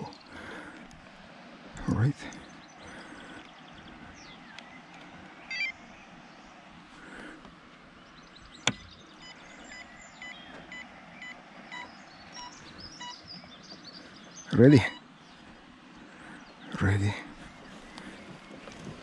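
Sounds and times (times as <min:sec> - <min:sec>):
short electronic beeps: 0:09.2 - 0:13.2.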